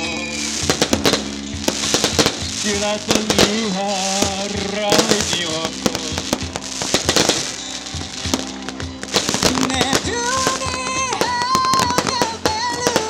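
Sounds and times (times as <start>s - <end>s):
live band music: 0.0s - 13.0s
sharp cracking hits: 0.6s - 13.0s
man singing into a microphone: 2.6s - 6.3s, 9.5s - 13.0s.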